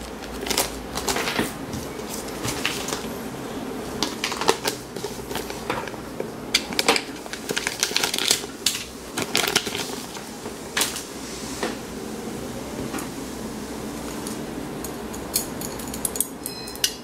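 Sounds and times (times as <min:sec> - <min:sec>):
plastic bag crinkling: 0:00.0 - 0:03.2, 0:03.9 - 0:05.8, 0:06.6 - 0:11.0.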